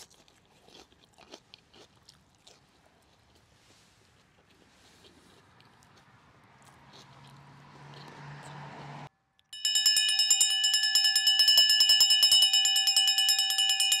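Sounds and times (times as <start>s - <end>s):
faint background noise: 0.0s - 9.5s
metal bell ringing rapidly: 9.6s - 14.0s.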